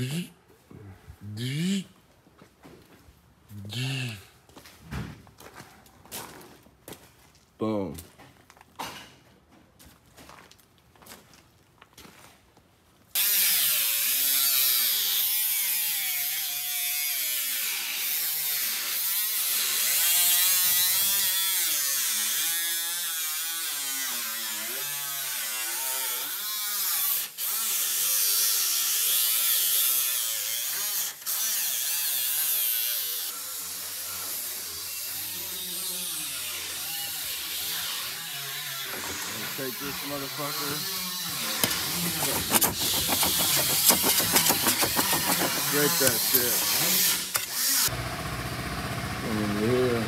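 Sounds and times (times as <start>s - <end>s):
angle grinder cutting metal: 13.2s - 48.1s.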